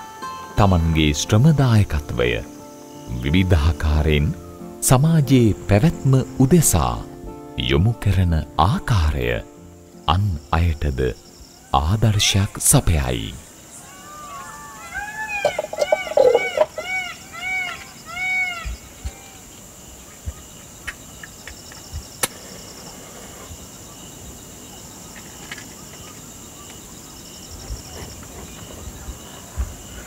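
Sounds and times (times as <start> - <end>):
faint steady hiss: 0.0 - 30.0
insects chirping: 0.0 - 30.0
animal calling: 13.7 - 20.6.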